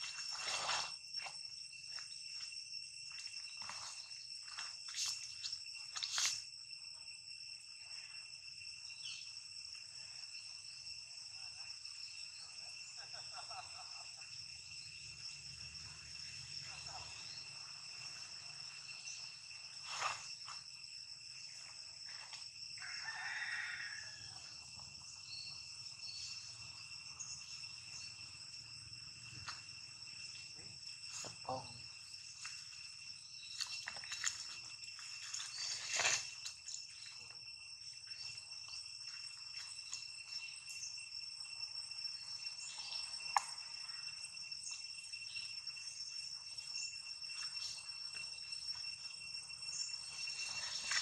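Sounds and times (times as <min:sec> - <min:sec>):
insect drone: 0:00.0 - 0:51.0
distant rooster crowing: 0:22.8 - 0:24.7.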